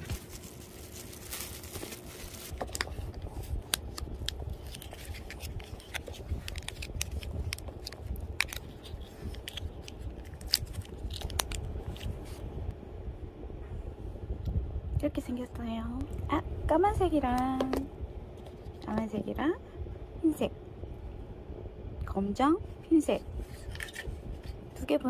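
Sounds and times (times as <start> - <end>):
packaging clicks and crinkles: 0.0 - 12.3
packaging tearing: 0.0 - 12.3.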